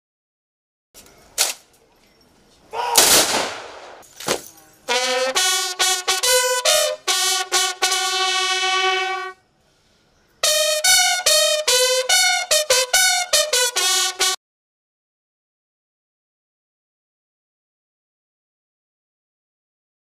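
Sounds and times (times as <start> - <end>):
rifle volley crack: 2.8 - 4.4
bugle playing slow notes: 4.9 - 9.4, 10.4 - 14.4.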